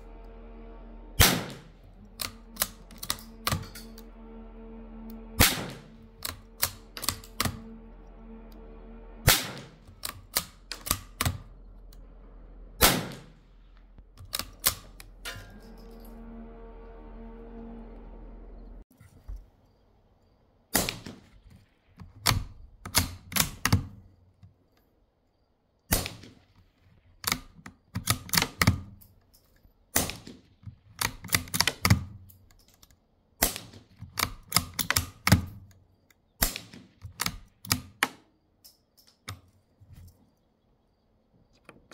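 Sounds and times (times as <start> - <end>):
muffled rifle shots: 1.2 - 3.7, 5.4 - 7.7, 9.3 - 11.4, 12.8 - 13.4, 20.7 - 21.3, 25.9 - 26.5, 29.9 - 30.6, 33.4 - 33.9, 36.4 - 37.7.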